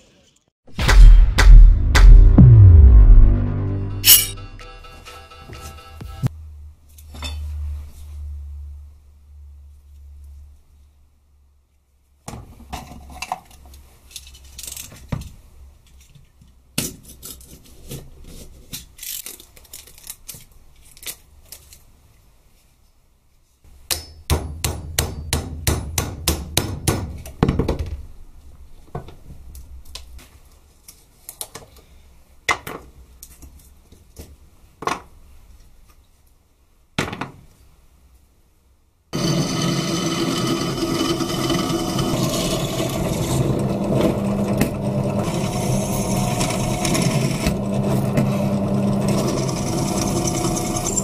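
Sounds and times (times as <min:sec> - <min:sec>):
hammer striking metal punch: 0:00.8 - 0:04.9, 0:23.9 - 0:27.2.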